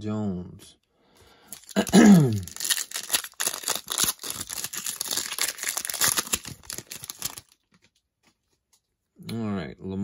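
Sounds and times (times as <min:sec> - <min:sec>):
foil wrapper crinkling: 0:01.5 - 0:07.9.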